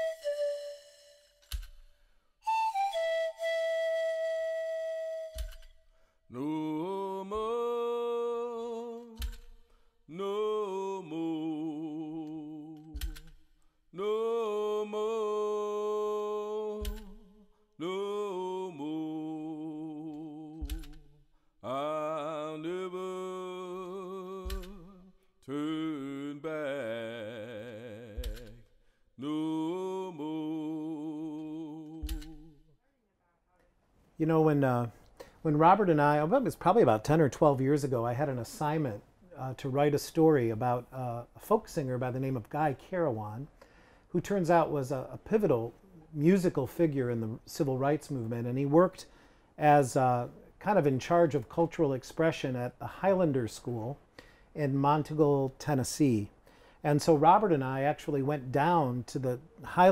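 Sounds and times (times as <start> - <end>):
person singing with vibrato: 6.3 - 32.7.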